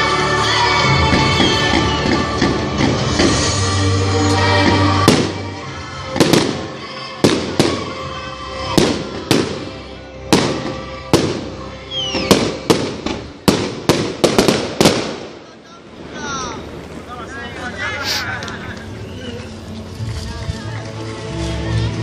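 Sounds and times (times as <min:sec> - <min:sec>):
music: 0:00.0 - 0:14.6, 0:17.6 - 0:22.0
fireworks bangs: 0:04.4 - 0:17.1
falling firework whistle: 0:11.9 - 0:12.6.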